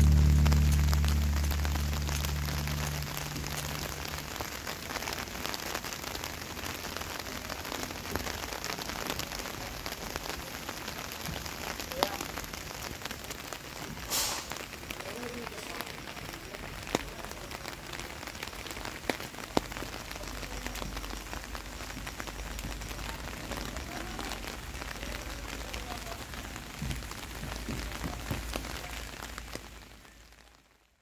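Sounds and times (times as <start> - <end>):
light rain pattering: 0.0 - 31.0.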